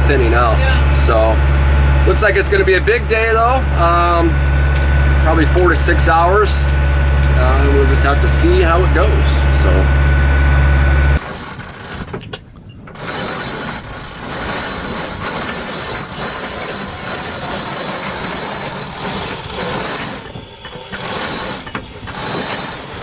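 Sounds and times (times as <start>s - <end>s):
deck winch ratcheting: 11.2s - 23.0s
clatter of gear and rigging: 13.0s - 23.0s.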